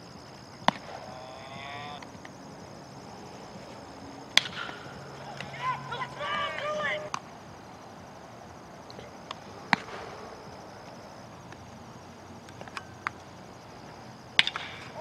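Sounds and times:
insects droning: 0.0 - 15.0
bat hitting baseball: 0.6 - 1.2, 4.3 - 5.6, 14.4 - 15.0.

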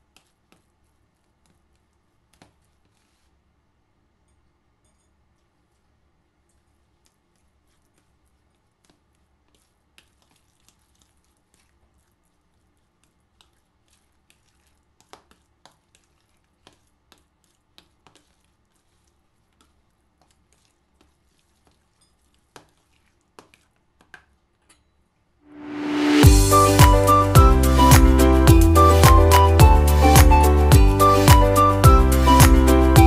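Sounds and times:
fork mashing in a bowl: 4.9 - 24.9.

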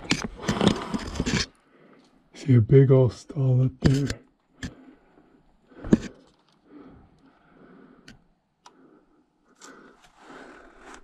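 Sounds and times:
sharp clicks: 3.8 - 4.8.

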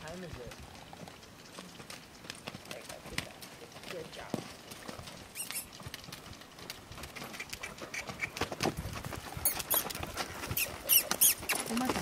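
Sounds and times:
horse hoofbeats on sand: 0.0 - 12.0.

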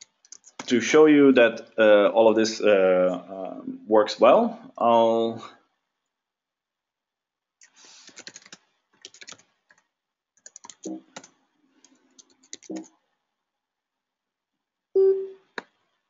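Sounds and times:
computer keyboard typing: 0.0 - 0.7, 8.0 - 9.8, 10.4 - 12.9.

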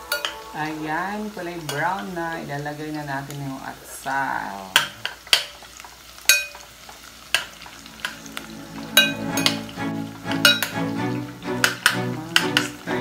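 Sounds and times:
background music: 0.0 - 2.9, 7.7 - 13.0
garlic and onion sizzling in oil: 0.0 - 13.0.

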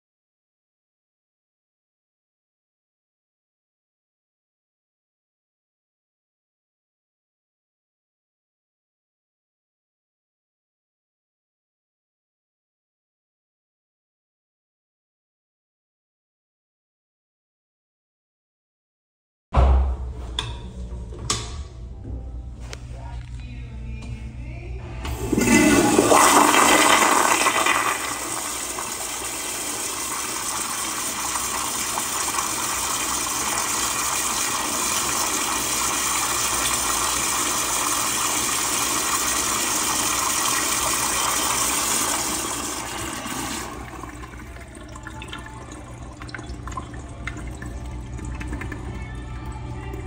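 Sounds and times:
toilet flushing: 25.0 - 50.0.

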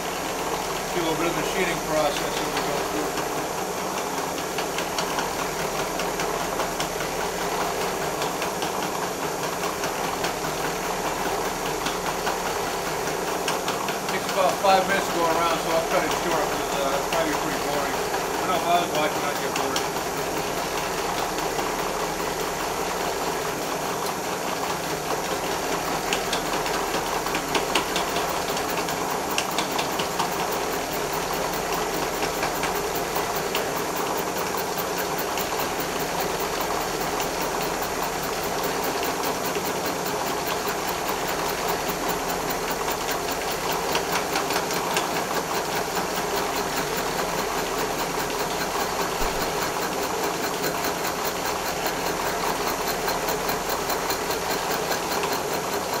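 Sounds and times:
milling machine cutting metal: 0.5 - 5.2, 26.0 - 56.0.

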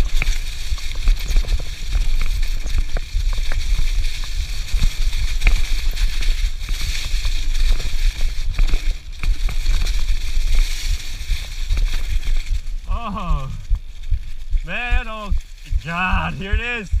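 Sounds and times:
wind rumble on microphone: 0.0 - 12.9
tyres crunching through dry leaves: 0.1 - 14.6.

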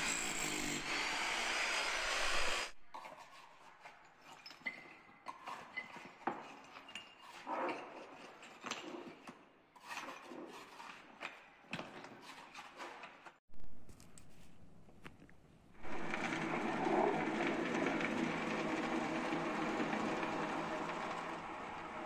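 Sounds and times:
electric demolition hammer: 15.8 - 22.0.

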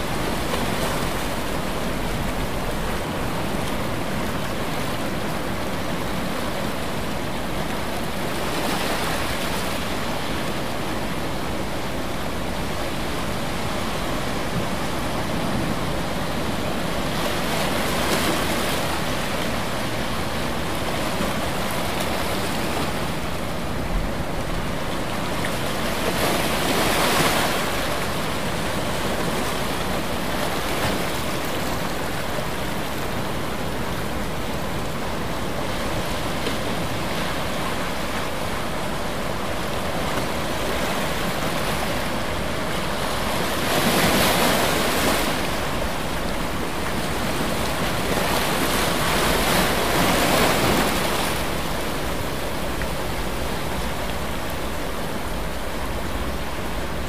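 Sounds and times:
ocean surf washing: 0.0 - 57.0
waves breaking: 0.0 - 57.0.

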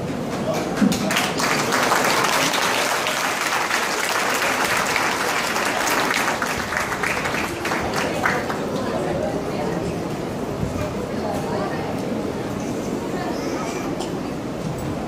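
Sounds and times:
audience applauding: 0.3 - 9.1.

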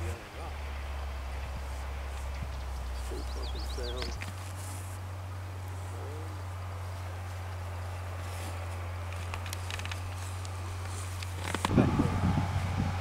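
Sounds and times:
faint insects or birds: 0.0 - 11.5
steady low hum: 0.0 - 13.0.

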